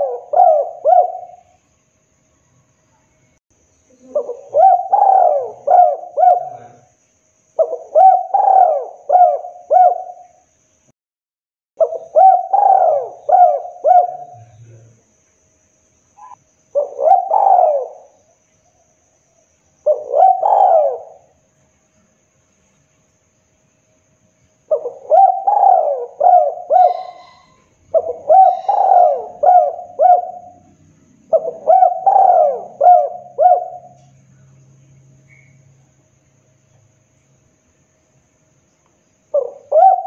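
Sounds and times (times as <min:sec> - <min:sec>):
dove cooing: 0:00.0 - 0:01.6, 0:03.9 - 0:06.9, 0:07.6 - 0:10.3, 0:11.8 - 0:14.6, 0:16.2 - 0:18.2, 0:19.8 - 0:21.3, 0:24.7 - 0:34.1, 0:39.3 - 0:40.0.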